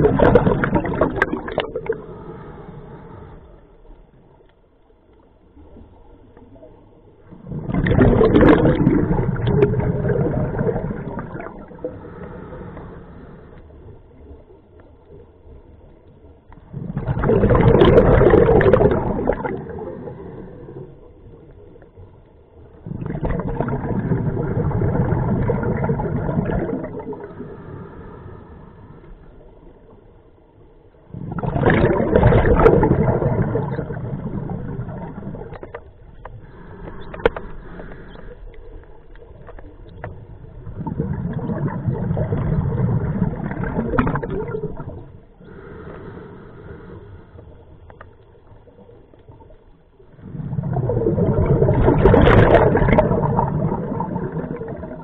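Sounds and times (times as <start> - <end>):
bubbling exhalations: 0.0 - 2.1, 7.5 - 12.5, 16.7 - 20.9, 22.8 - 27.6, 31.1 - 35.8, 40.5 - 46.1, 50.2 - 55.0
diver breathing through regulator: 1.7 - 3.7, 11.7 - 13.7, 27.0 - 29.4, 36.3 - 38.8, 45.3 - 47.8.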